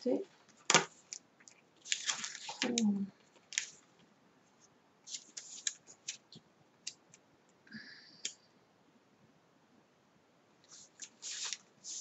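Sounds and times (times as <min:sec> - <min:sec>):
rummaging through paper tags: 0:01.8 - 0:03.8.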